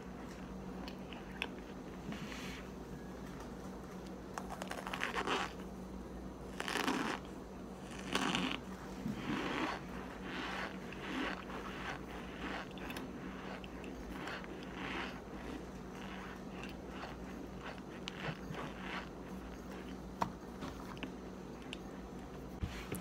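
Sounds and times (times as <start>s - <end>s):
cornstarch chunks crunching: 4.4s - 5.6s, 6.5s - 20.0s.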